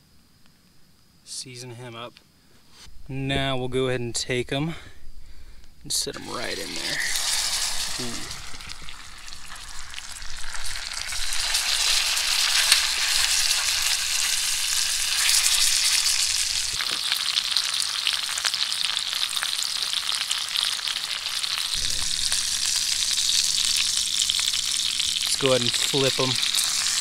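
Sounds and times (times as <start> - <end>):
fish sizzling in frying pan: 6.2 - 27.0.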